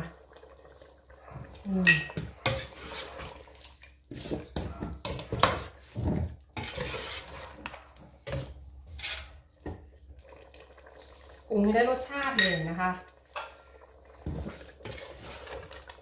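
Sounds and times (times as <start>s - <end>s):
metal ladle scraping a pot: 1.8s - 9.7s, 14.3s - 16.0s.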